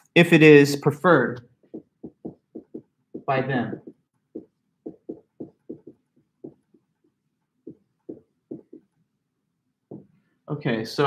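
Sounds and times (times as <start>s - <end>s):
marker writing on whiteboard: 1.6s - 9.0s.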